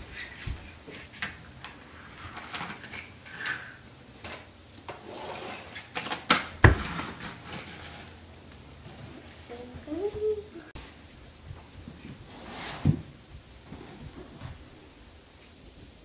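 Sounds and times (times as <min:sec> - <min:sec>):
toy box scraping and rustling: 0:01.0 - 0:03.8, 0:04.9 - 0:08.2, 0:12.2 - 0:13.1.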